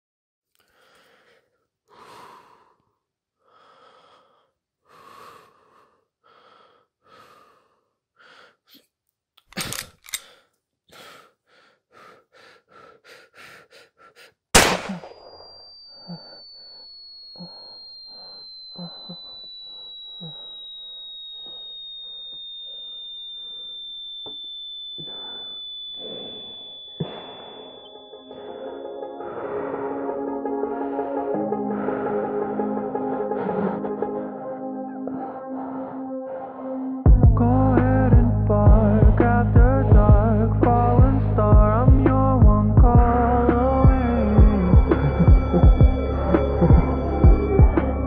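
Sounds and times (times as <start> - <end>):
heavy breathing: 0.6 - 8.8, 9.7 - 14.5, 28.3 - 37.1
sharp clicks: 9.4 - 10.4
loud gunshot: 14.6 - 15.2
high whining tone: 14.6 - 38.2, 43.0 - 48.0.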